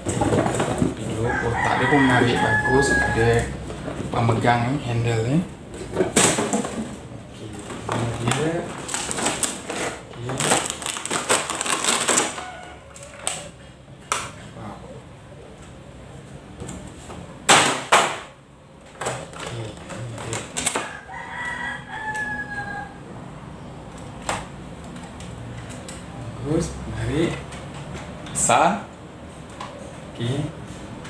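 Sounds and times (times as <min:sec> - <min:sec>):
rooster crowing: 0:01.0 - 0:03.7, 0:12.2 - 0:13.6, 0:20.7 - 0:23.8
plastic packaging crinkling: 0:07.9 - 0:13.5.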